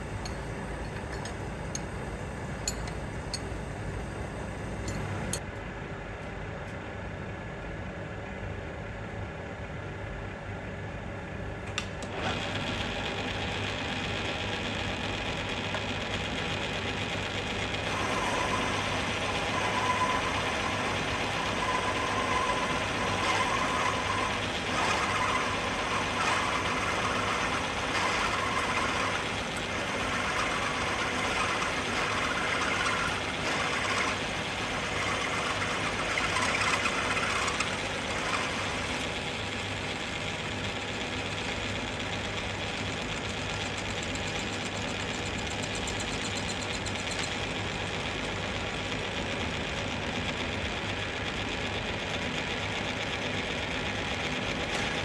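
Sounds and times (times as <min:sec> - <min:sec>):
milling machine motor hum: 0:12.0 - 0:55.0.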